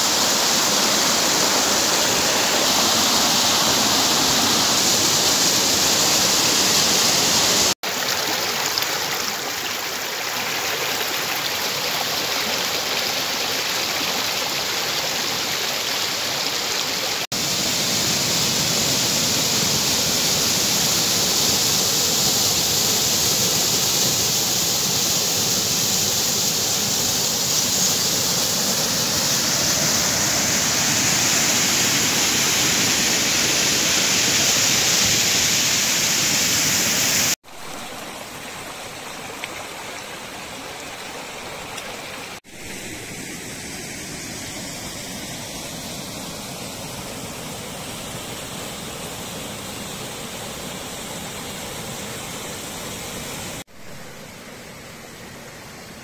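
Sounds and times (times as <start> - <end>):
waterfall pouring into pool: 0.0 - 39.6.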